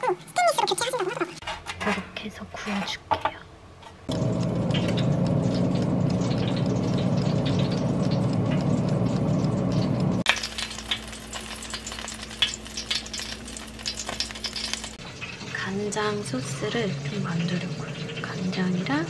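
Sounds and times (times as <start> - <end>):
air fryer hum: 3.6 - 19.0
fat sizzling and crackling: 4.0 - 19.0.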